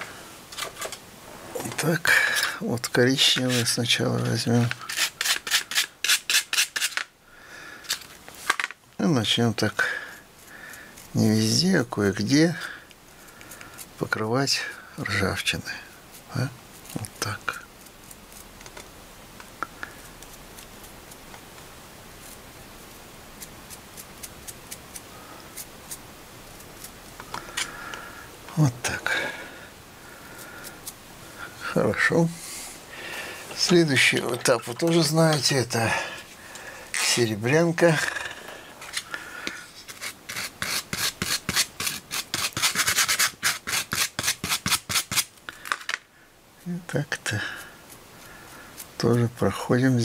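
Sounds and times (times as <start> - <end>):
low room hiss: 0.0 - 50.0
paintbrush scrubbing on paper towel: 3.1 - 6.9, 39.7 - 45.3.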